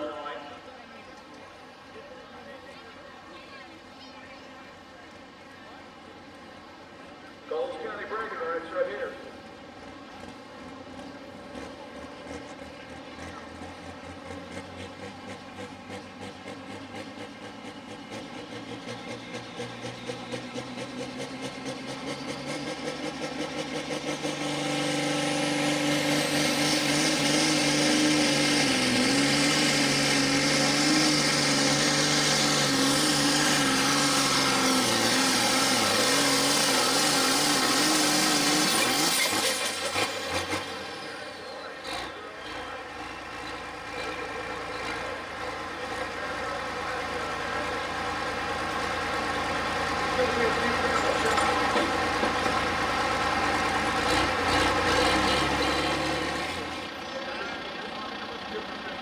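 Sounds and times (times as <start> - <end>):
diesel tractor engine under load: 0.0 - 59.0.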